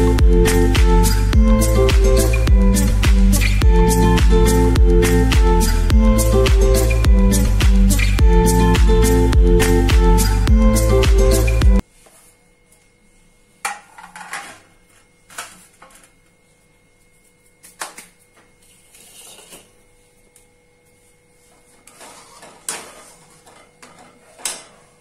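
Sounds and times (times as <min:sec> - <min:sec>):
background music: 0:00.0 - 0:11.8.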